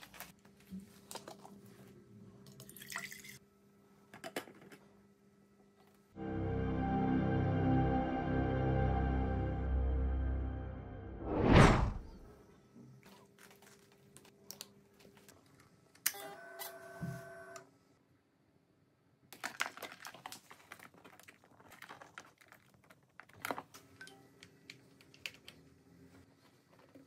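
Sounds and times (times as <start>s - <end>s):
plastic parts clicking and rustling: 19.3s - 25.8s.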